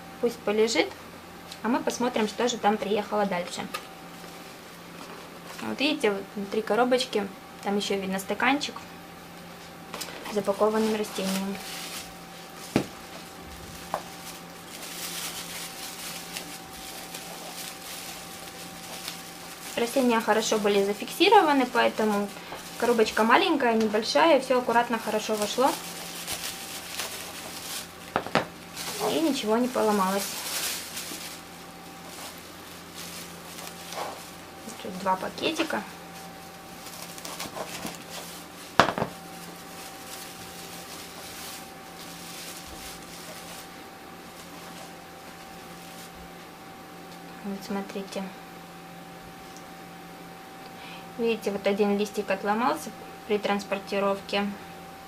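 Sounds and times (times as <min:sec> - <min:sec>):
plastic bag rustling: 0:09.4 - 0:46.4
plastic wrapping crinkling: 0:09.7 - 0:46.3.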